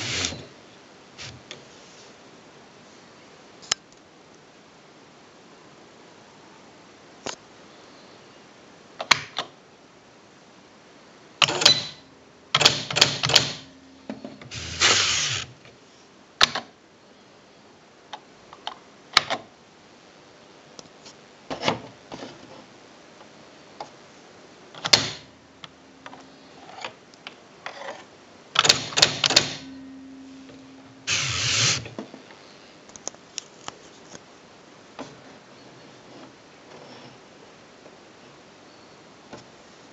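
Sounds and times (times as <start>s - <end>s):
typewriter clicks: 11.4s - 12.0s, 12.6s - 13.7s, 28.6s - 29.7s
typewriter mechanical clatter: 11.4s - 12.0s, 12.6s - 13.7s, 28.6s - 29.7s.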